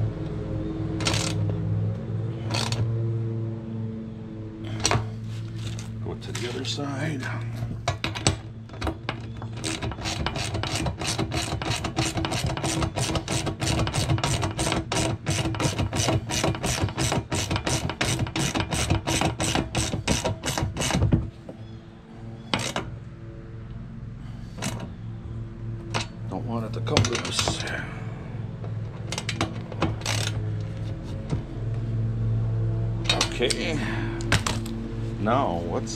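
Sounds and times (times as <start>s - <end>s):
ratchet wrench clicking: 1.0s - 1.4s.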